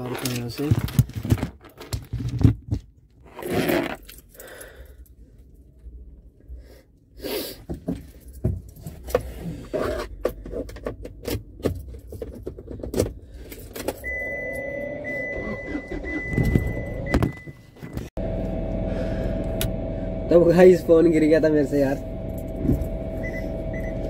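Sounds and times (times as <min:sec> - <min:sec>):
low hum: 0:18.2 - 0:24.0
high beeping tone: 0:22.9 - 0:24.0.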